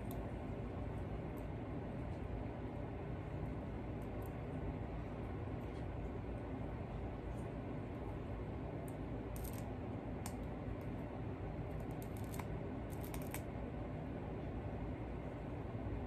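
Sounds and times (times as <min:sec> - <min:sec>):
low background hum: 0:00.0 - 0:16.0.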